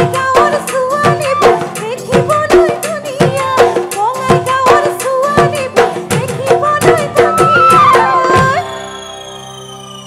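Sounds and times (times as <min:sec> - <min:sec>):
steady drum beats: 0:00.0 - 0:08.7
wavering ornamented melody: 0:08.1 - 0:10.0.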